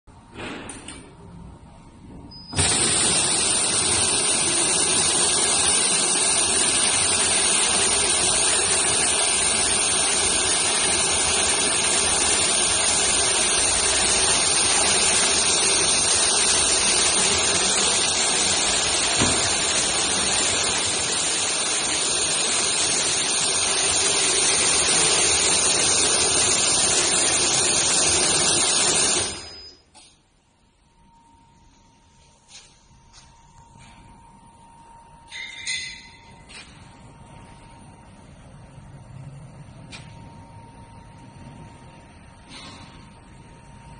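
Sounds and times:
tape slitting machine running: 0:02.5 - 0:29.7.

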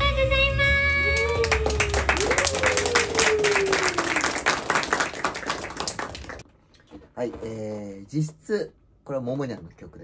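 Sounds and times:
audience clapping and cheering: 0:01.0 - 0:06.4.

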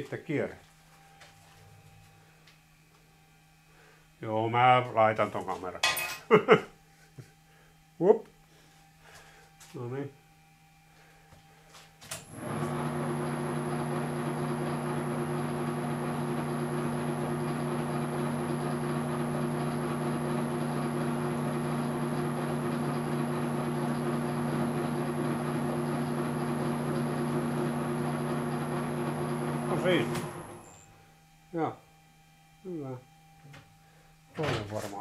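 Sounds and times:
lathe humming and whining: 0:07.4 - 0:08.0, 0:12.2 - 0:31.4
lathe clicking into gear: 0:28.2 - 0:30.7.

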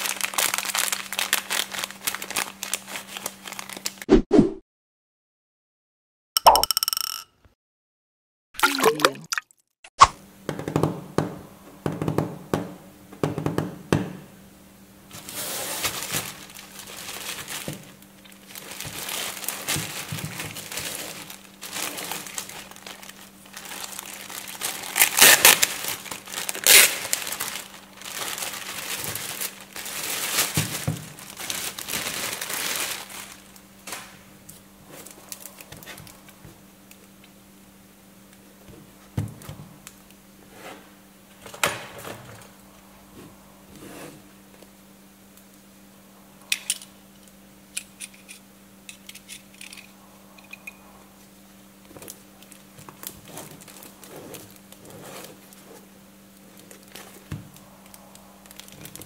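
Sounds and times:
plastic wrapping crinkling: 0:00.0 - 0:04.1, 0:15.1 - 0:36.4, 0:51.8 - 0:59.0.

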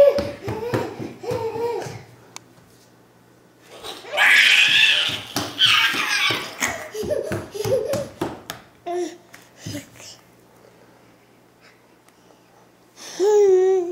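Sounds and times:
toddler squealing excitedly: 0:03.8 - 0:06.9.

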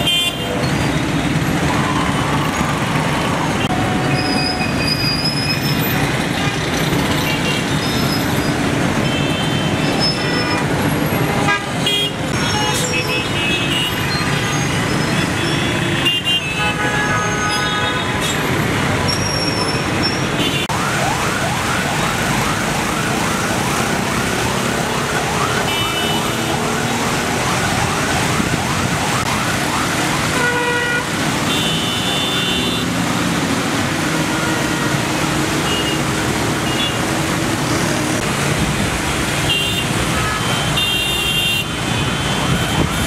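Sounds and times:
car horns honking: 0:00.0 - 0:00.6, 0:09.0 - 0:20.7, 0:30.3 - 0:33.1, 0:39.4 - 0:43.0
traffic engines running: 0:00.0 - 0:43.0
electronic siren yelping: 0:19.3 - 0:30.3.

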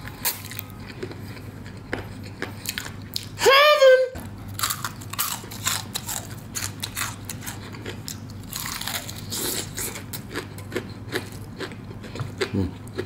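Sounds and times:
crunching crispy fried chicken: 0:04.6 - 0:12.6
wet chewing: 0:04.6 - 0:13.0.

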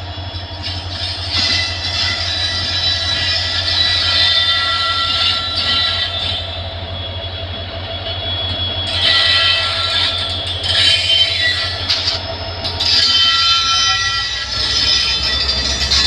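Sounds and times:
diesel locomotive engine throbbing: 0:00.0 - 0:16.0
wheels rumbling on rail: 0:00.0 - 0:16.0
high squealing tones: 0:08.0 - 0:16.0.

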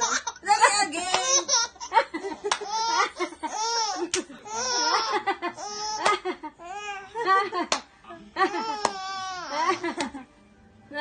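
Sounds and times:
baby laughing: 0:00.0 - 0:00.4, 0:01.1 - 0:07.1, 0:08.4 - 0:10.1.

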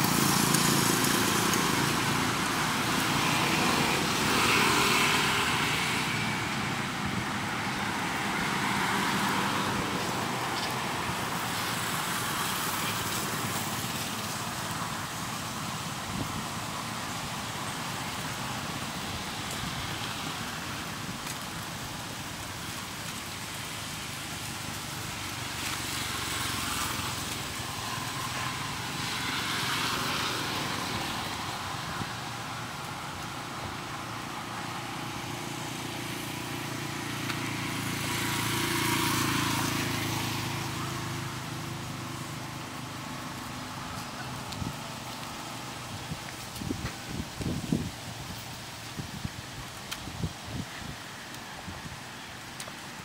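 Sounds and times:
passing vehicles engine hum: 0:00.0 - 0:53.0.

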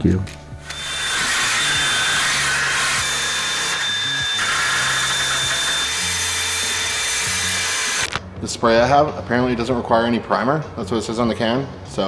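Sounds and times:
drill wire brush scouring metal: 0:00.6 - 0:08.1.

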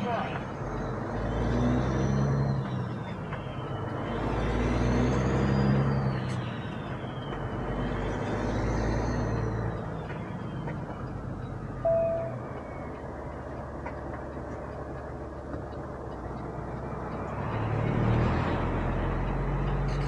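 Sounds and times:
diesel truck engine running: 0:00.0 - 0:20.0
thin high whistle: 0:11.8 - 0:12.4.

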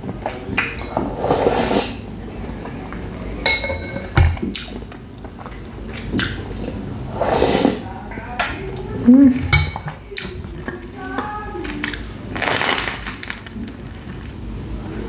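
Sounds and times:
spoon clinking on ceramic bowl: 0:03.5 - 0:04.2
chewing: 0:04.4 - 0:06.9
soup slurping from spoon: 0:06.7 - 0:07.8.

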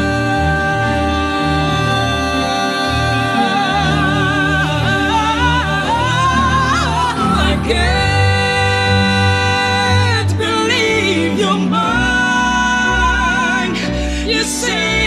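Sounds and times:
backing track: 0:00.0 - 0:15.0
man and woman singing duet: 0:00.0 - 0:15.0.

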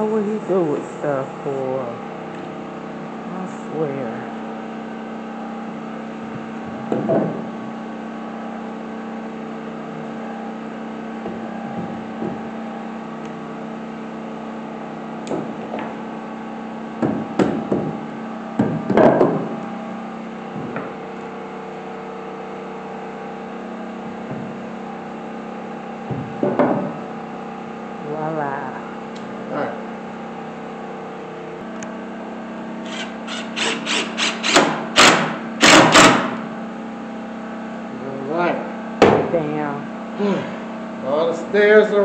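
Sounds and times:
steady hum: 0:00.0 - 0:42.0
wood knocking on wood: 0:06.8 - 0:07.5, 0:11.2 - 0:12.5, 0:17.0 - 0:18.0, 0:18.6 - 0:19.6, 0:24.1 - 0:24.6, 0:26.0 - 0:27.0.

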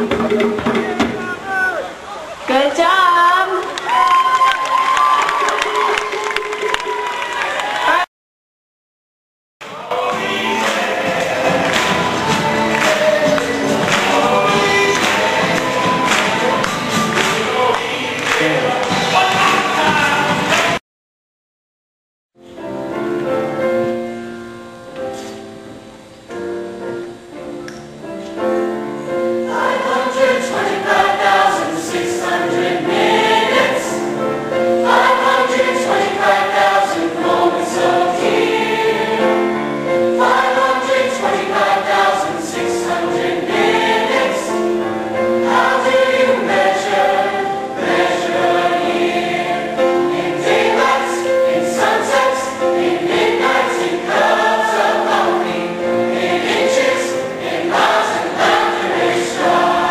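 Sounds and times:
mixed choir singing: 0:09.6 - 0:20.8, 0:29.1 - 0:59.9.

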